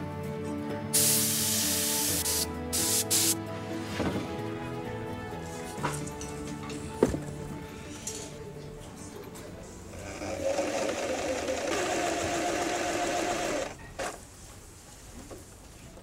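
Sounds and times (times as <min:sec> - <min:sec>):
sewing machine stitching: 0:09.9 - 0:14.2.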